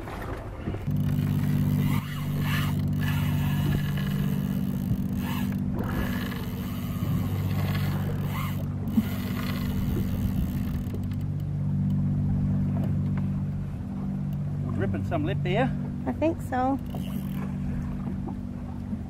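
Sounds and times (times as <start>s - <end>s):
boat motor idling: 0.0s - 19.0s
short zipping scrapes: 1.8s - 4.3s.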